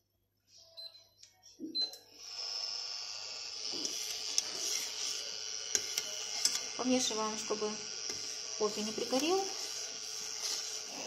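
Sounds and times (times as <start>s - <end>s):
electric hob beeping: 1.8s - 11.0s.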